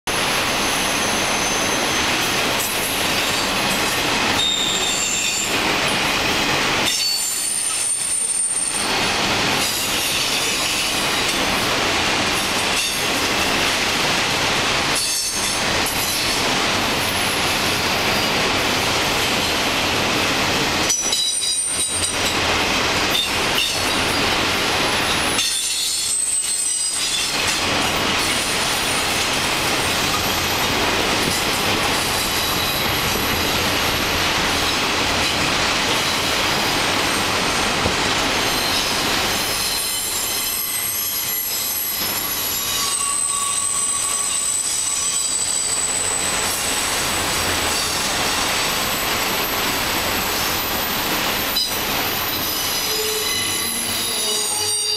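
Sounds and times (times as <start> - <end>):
train wheels rolling on rail: 0.1 - 54.9
high-pitched wheel squeal: 4.4 - 5.5, 25.0 - 27.3, 38.5 - 46.3, 51.6 - 54.9.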